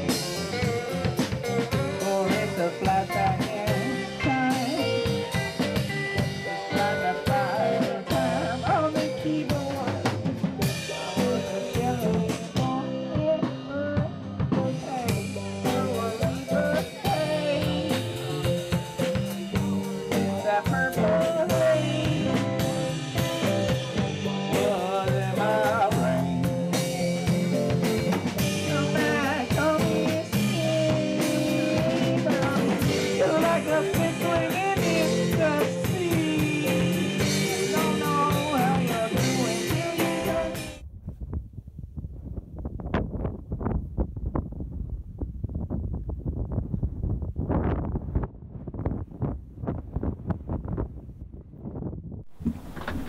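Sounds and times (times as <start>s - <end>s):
drum kit steady beat: 0.0s - 40.8s
electric guitar: 0.0s - 40.8s.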